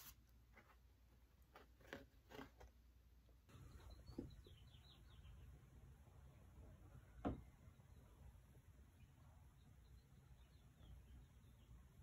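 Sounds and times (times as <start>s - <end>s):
vinyl record and sleeve rustling: 0.0s - 2.8s.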